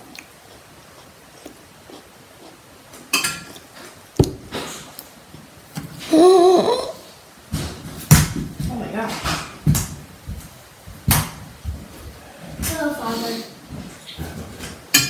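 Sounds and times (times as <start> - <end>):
girl's vocal exclamation: 6.1 - 7.0.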